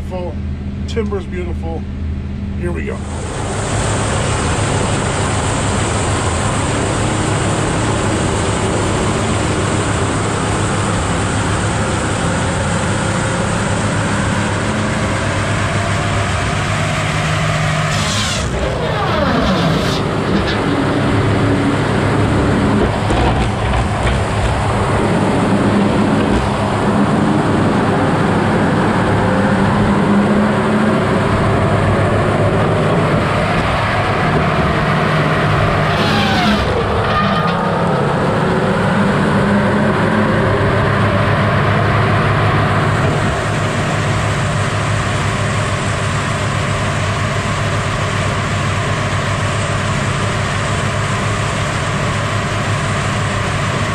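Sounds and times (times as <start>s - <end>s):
heavy machine running: 0.0s - 53.9s
whine: 0.0s - 53.9s
circular saw blade cutting logs: 17.8s - 27.4s, 35.5s - 37.8s.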